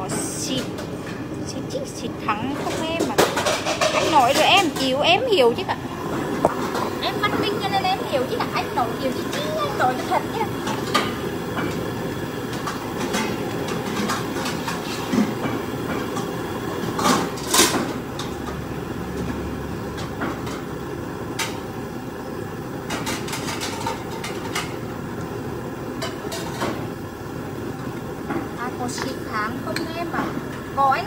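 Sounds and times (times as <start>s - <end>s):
objects knocking and clattering: 2.6s - 5.0s, 22.9s - 24.8s.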